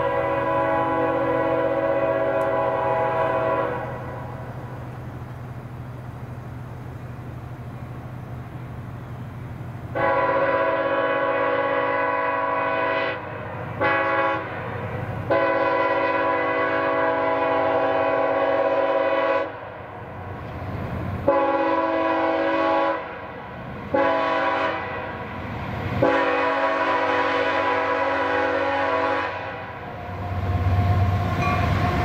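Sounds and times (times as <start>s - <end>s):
locomotive air horn blasts: 0.0s - 4.5s, 9.9s - 19.9s, 21.2s - 25.3s, 26.0s - 32.0s
train rumble: 0.0s - 32.0s.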